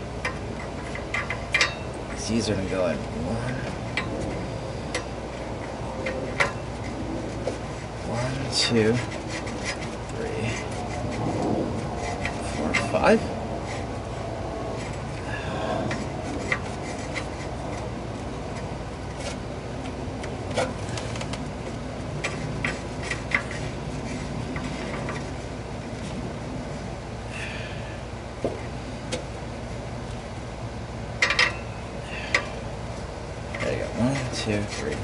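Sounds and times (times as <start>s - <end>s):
steady low hum: 0.0s - 35.0s
glove rubbing on metal: 3.7s - 19.6s, 20.4s - 26.6s, 33.5s - 35.0s.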